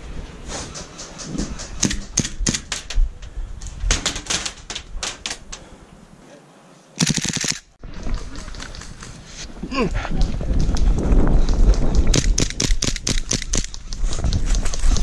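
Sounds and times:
airsoft gunfire: 7.0s - 7.7s.

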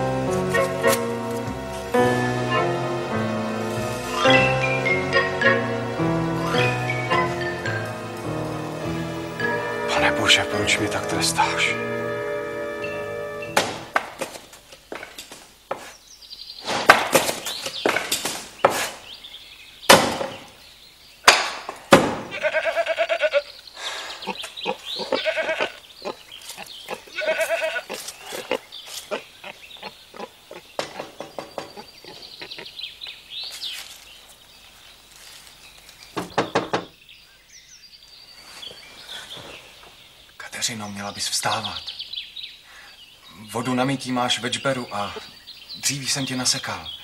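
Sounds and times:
axe chopping firewood: 16.7s - 19.0s, 19.9s - 20.4s, 21.3s - 22.3s
goat bleating: 22.3s - 23.6s, 24.2s - 26.2s, 26.9s - 30.3s.

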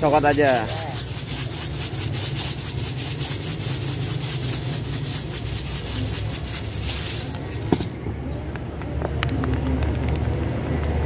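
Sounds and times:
sprinkles rattling in plastic bottle: 0.0s - 8.0s.

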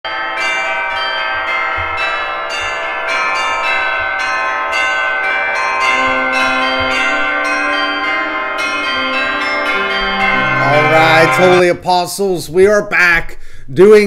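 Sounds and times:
church bells pealing: 0.1s - 12.6s.

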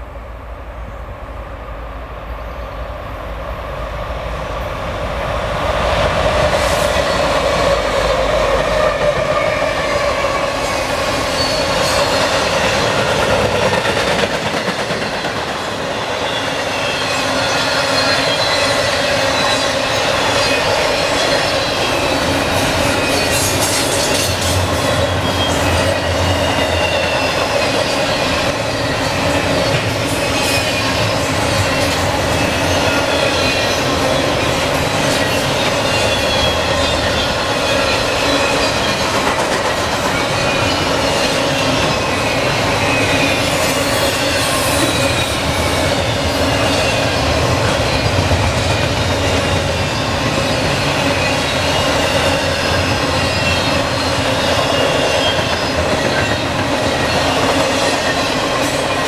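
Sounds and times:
freight train roaring past: 0.0s - 59.0s
train wheels squealing: 6.4s - 59.0s.

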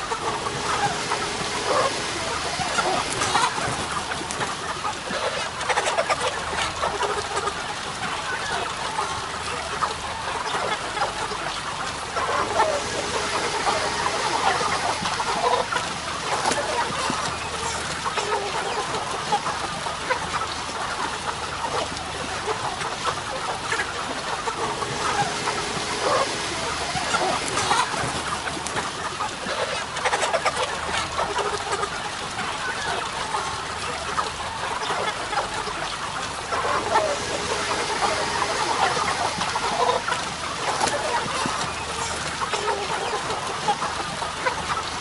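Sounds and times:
chickens clucking: 0.0s - 21.9s, 23.4s - 45.0s.

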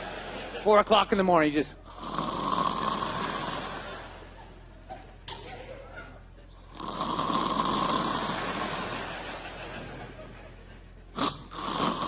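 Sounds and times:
audience laughing: 0.0s - 1.2s, 3.1s - 6.7s, 8.2s - 11.3s.

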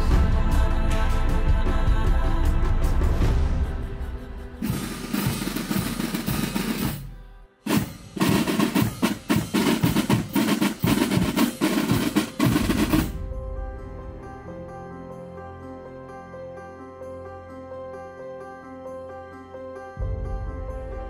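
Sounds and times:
side drums and bass drum: 4.6s - 7.1s, 7.7s - 13.2s
snare drum roll: 4.6s - 7.1s, 7.7s - 13.2s
soft music with held notes: 10.3s - 21.0s.

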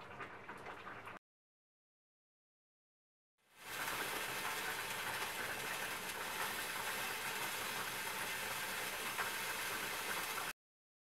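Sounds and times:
stew simmering hiss: 3.5s - 10.5s.

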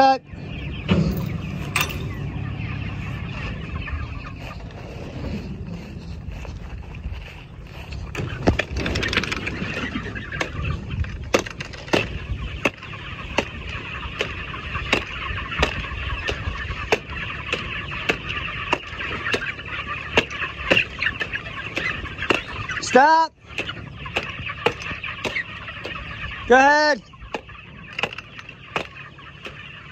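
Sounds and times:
chickens peeping and chattering: 0.0s - 29.9s
sharp rhythmic knocks: 11.3s - 22.5s, 23.6s - 26.0s, 27.3s - 29.6s.

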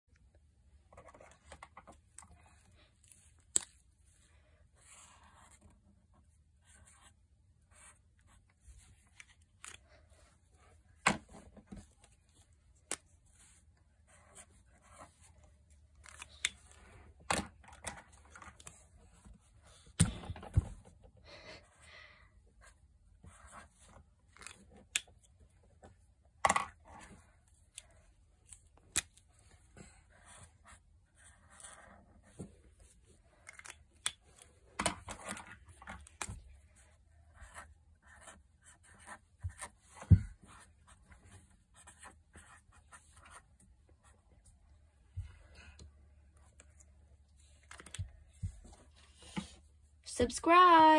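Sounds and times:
marker scratching on paper: 37.3s - 43.5s.

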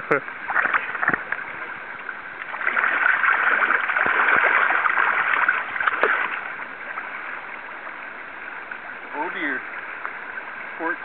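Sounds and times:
fish splashing in shallow water: 0.3s - 11.0s.

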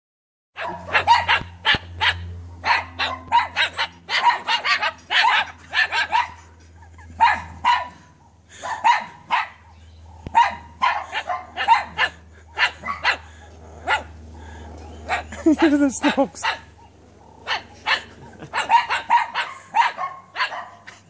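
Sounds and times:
cockatoo mimicking dog barks: 0.6s - 6.4s, 8.7s - 14.2s, 15.0s - 21.0s.

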